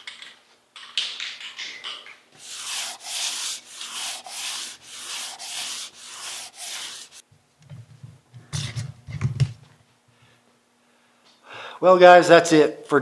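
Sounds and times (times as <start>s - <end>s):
sandpaper rubbing back and forth: 2.4s - 7.2s.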